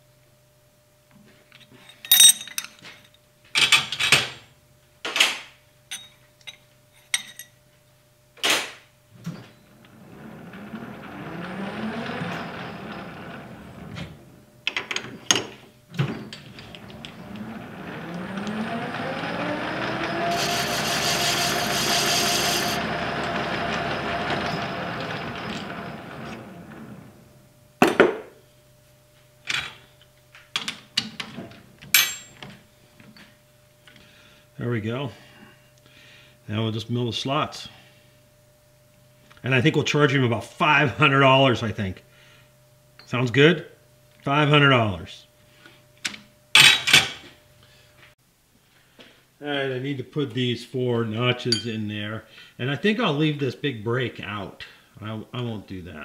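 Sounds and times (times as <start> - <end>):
lathe motor whine: 9.5 - 15.2, 16.1 - 27.5.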